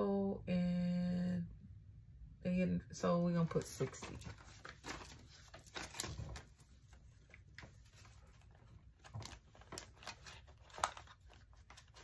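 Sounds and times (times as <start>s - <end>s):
paper banknotes rustling: 3.5s - 12.0s.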